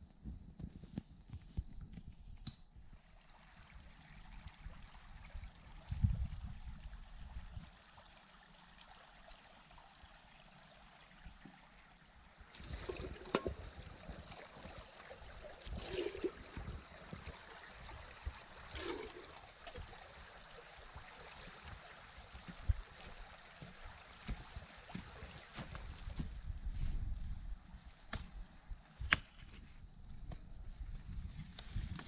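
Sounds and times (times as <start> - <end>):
stream trickling: 2.8 - 29.0
kettle filling with water: 7.3 - 23.4
boots wading and splashing in water: 12.4 - 20.2, 21.0 - 26.5.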